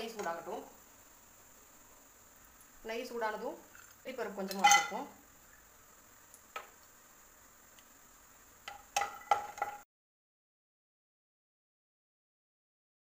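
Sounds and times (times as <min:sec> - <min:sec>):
wooden spatula clicking on pan: 0:08.6 - 0:09.8.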